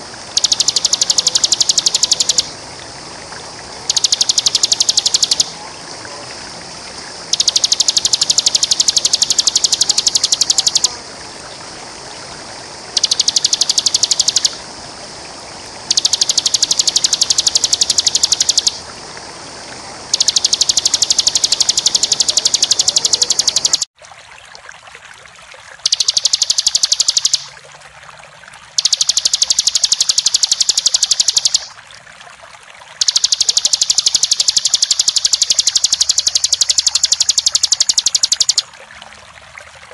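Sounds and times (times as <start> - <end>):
flowing water rushing: 0.0 - 39.9
bird buzzing trill: 3.9 - 5.5, 7.3 - 10.9, 13.0 - 14.6, 15.9 - 18.8, 20.2 - 23.9.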